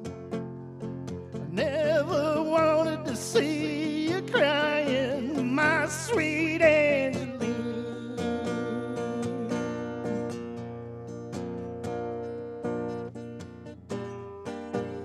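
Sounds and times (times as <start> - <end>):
strummed acoustic guitar: 0.0 - 15.0
man singing: 1.5 - 10.4.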